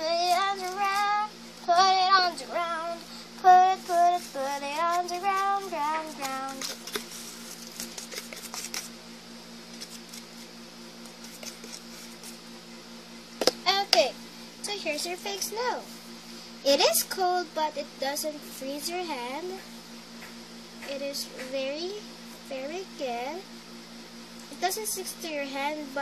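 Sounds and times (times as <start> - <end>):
girl singing: 0.0 - 6.8, 13.7 - 15.8, 16.7 - 19.6, 20.9 - 23.4, 24.5 - 26.0
steady low hum: 0.0 - 26.0.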